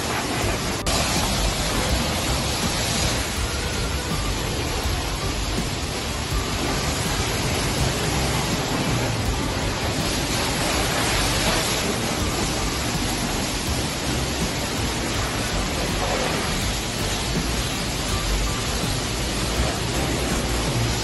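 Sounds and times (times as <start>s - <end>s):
pressure washer spraying water: 0.0s - 21.0s.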